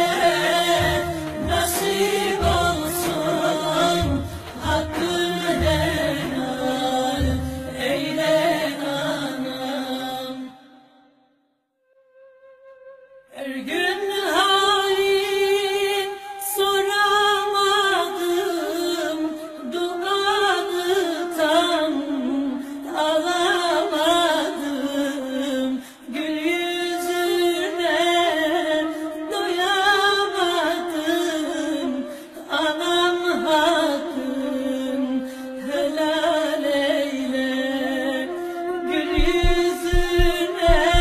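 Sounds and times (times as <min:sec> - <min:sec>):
person singing slow melody: 0:34.4 - 0:41.0.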